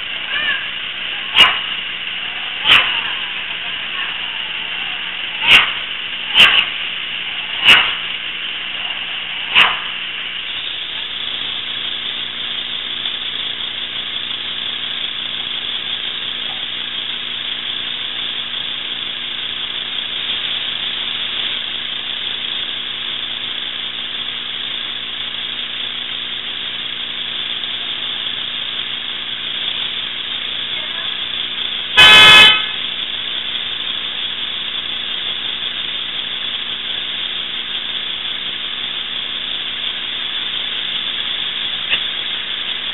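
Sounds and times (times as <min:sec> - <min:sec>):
sharp clicks: 0:01.4 - 0:01.7, 0:05.4 - 0:06.7, 0:07.6 - 0:08.0, 0:09.5 - 0:09.9.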